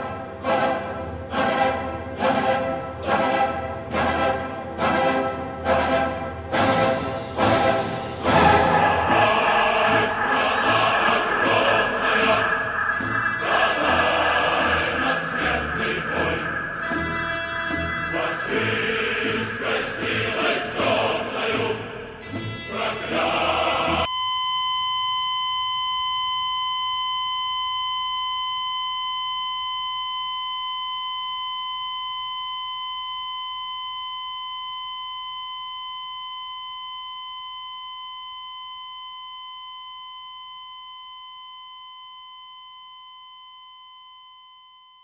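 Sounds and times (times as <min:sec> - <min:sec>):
choral music: 0:00.0 - 0:24.1
high ringing tone: 0:06.7 - 0:20.4, 0:24.0 - 0:45.0.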